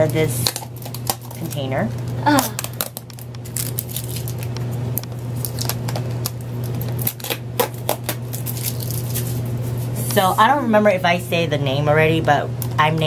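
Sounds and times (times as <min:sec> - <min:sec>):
tape peeling off plastic lid: 0:05.4 - 0:09.5.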